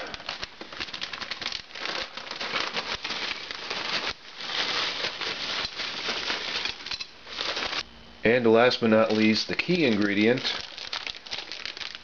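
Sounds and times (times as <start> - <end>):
pretzels clattering into a bowl: 0.1 - 7.8.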